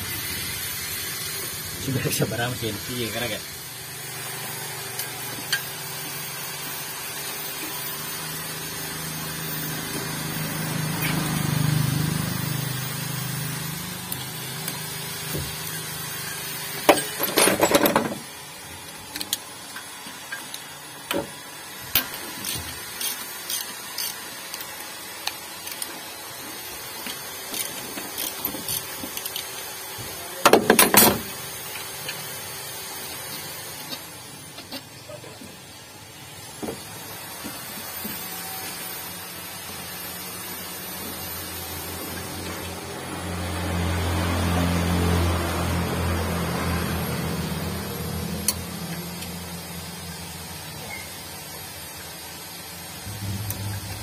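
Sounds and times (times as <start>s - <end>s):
ratchet wrench clicking: 4.8s - 6.3s, 13.6s - 14.9s, 18.8s - 21.2s, 21.9s - 26.0s, 27.0s - 29.7s, 48.3s - 50.3s
low rumble: 53.1s - 54.0s.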